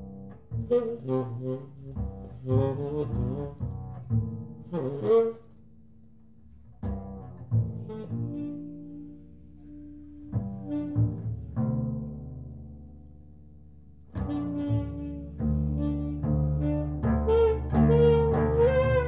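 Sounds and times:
double bass: 0.0 - 19.0
tenor saxophone improvising: 0.6 - 4.0, 4.6 - 5.6, 14.2 - 19.0.

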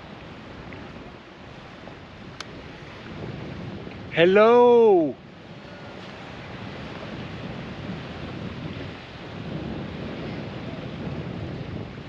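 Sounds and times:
surf: 0.0 - 12.0
wind buffeting microphone: 0.0 - 12.0.

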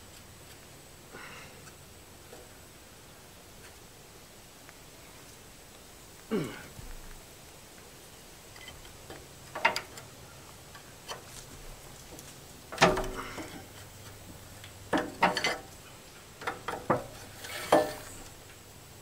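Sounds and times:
wrenches clicking and clanking: 15.0 - 15.7.

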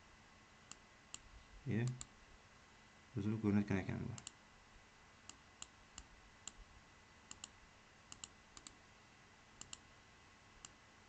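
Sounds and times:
computer mouse clicking: 0.7 - 2.1, 4.2 - 4.4, 5.2 - 6.6, 7.3 - 8.8, 9.6 - 9.8.

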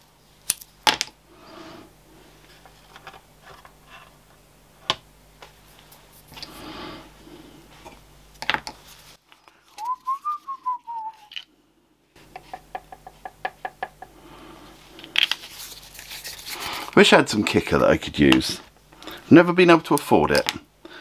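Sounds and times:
person whistling a tune: 9.8 - 11.4.

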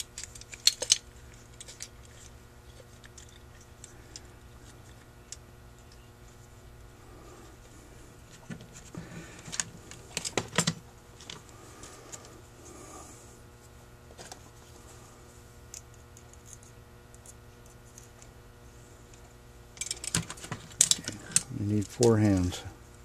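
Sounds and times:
small metal parts clicking: 0.0 - 6.0, 19.8 - 22.0.

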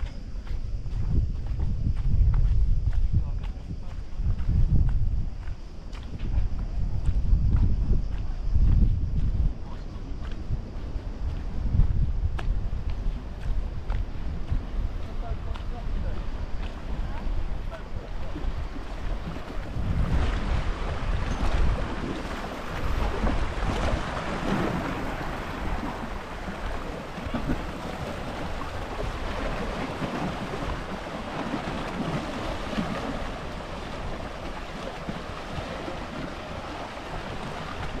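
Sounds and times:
wind buffeting microphone: 0.0 - 38.0
sea waves washing onto shore: 12.8 - 38.0.

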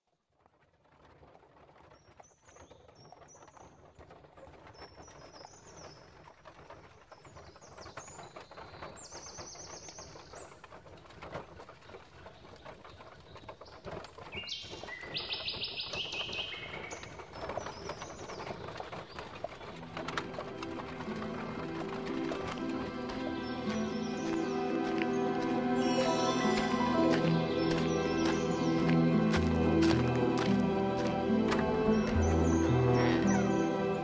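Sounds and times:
small birds chirping and trilling: 4.6 - 34.0.

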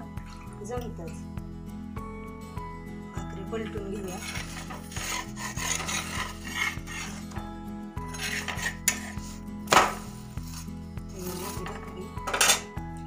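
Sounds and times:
metal spatula scraping griddle: 4.0 - 7.4, 8.0 - 12.6.

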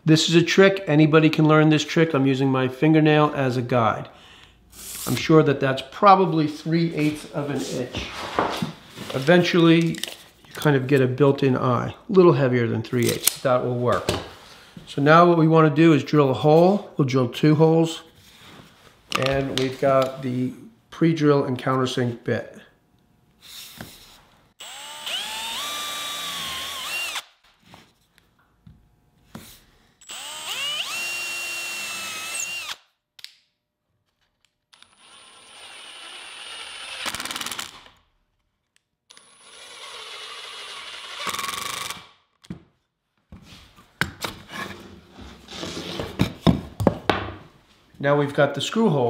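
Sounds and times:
cordless drill whine: 24.6 - 27.3, 30.0 - 32.8, 34.8 - 37.8, 39.1 - 42.0
cordless driver driving screws: 30.0 - 32.8.

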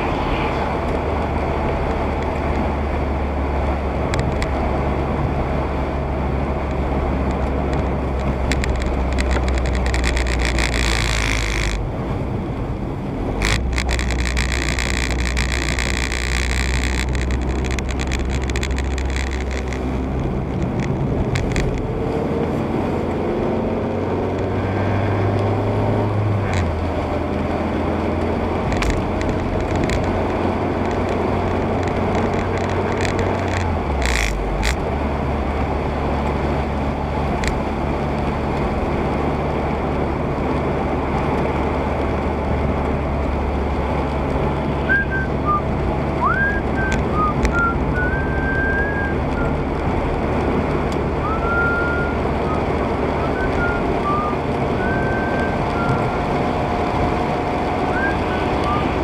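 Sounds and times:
car engine hum: 0.0 - 59.0
tyre noise on wet road: 0.0 - 59.0
sharp clicks: 6.7 - 11.9, 13.4 - 21.9, 28.6 - 34.8.

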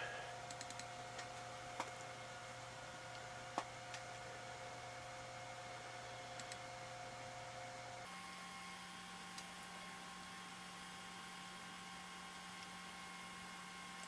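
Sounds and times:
desktop computer hum and whine: 0.0 - 14.0
soft clicks: 6.4 - 6.6.

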